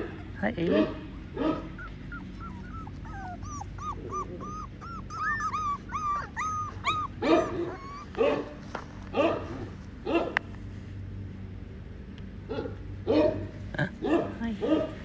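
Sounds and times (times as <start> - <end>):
puppies whining: 1.2 - 8.7.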